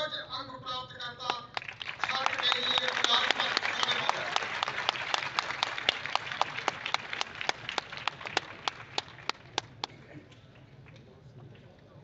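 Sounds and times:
close hand claps: 0:01.3 - 0:10.0
audience applauding: 0:01.6 - 0:10.0.

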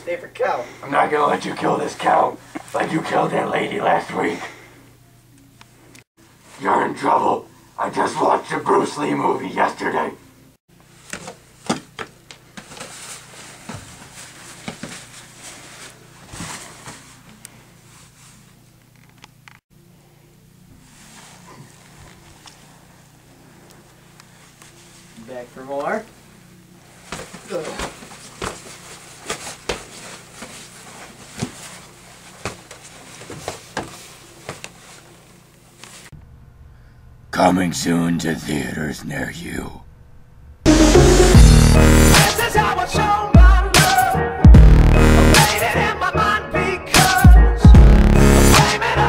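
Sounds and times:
scuffling and slaps: 0:11.0 - 0:17.4, 0:27.0 - 0:35.1.

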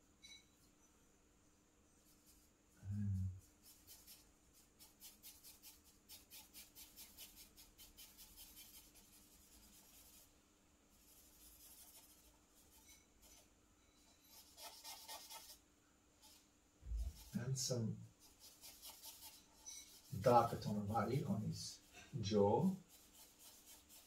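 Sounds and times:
charcoal scratching on paper: 0:02.0 - 0:02.5, 0:03.3 - 0:10.3, 0:11.0 - 0:15.6, 0:16.2 - 0:17.4, 0:18.2 - 0:22.0, 0:22.7 - 0:24.0.

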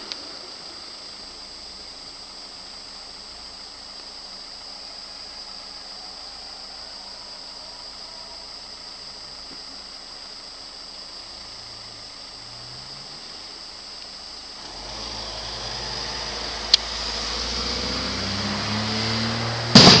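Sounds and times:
crickets trilling: 0:00.0 - 0:20.0
loud crack: 0:19.7 - 0:20.0.

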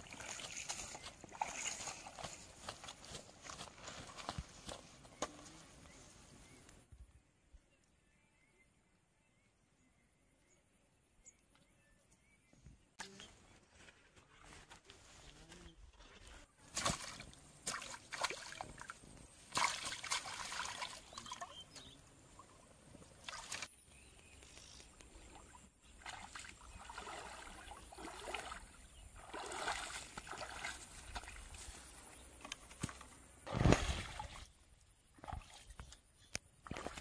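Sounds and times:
person wading through water: 0:00.0 - 0:05.0, 0:16.0 - 0:23.7, 0:25.2 - 0:32.3
hands splashing in water: 0:16.7 - 0:21.4.

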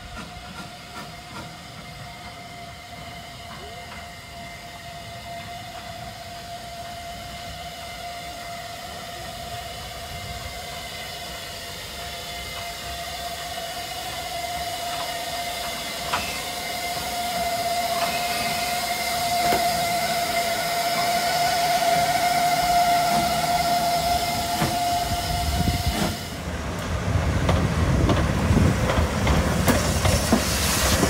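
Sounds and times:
steam locomotive hissing: 0:00.0 - 0:31.0.

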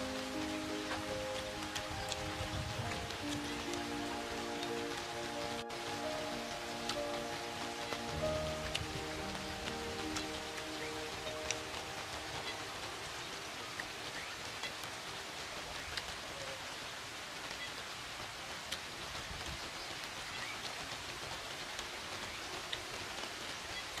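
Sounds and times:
faint clicks and ticks: 0:00.0 - 0:16.2
outdoor background hiss: 0:00.0 - 0:24.0.

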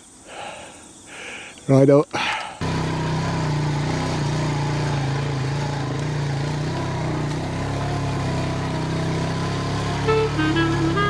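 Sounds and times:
vehicle engine running: 0:02.6 - 0:11.0.

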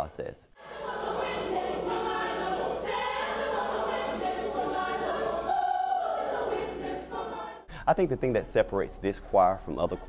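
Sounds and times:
mixed choir singing: 0:00.6 - 0:07.7.

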